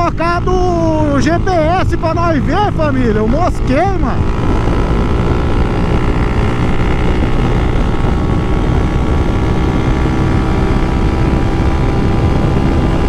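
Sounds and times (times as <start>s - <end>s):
motorcycle engine at high revs: 0.0s - 13.0s
wind rush on microphone: 0.0s - 13.0s.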